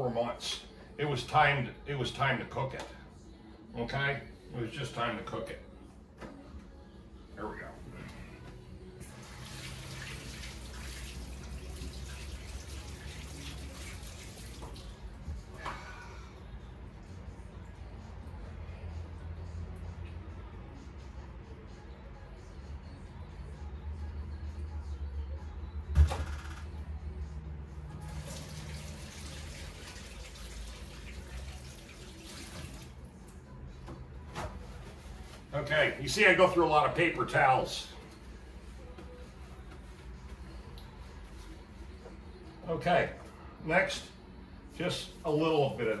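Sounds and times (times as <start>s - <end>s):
faucet running into sink: 9.2s - 14.9s, 28.1s - 33.0s.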